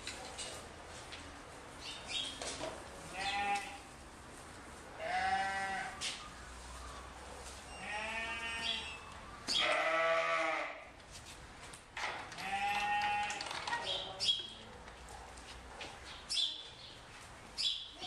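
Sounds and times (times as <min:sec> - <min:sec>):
farm animal bleating: 0:03.1 - 0:03.9, 0:05.0 - 0:06.0, 0:07.7 - 0:09.0, 0:09.6 - 0:10.9, 0:12.4 - 0:13.4.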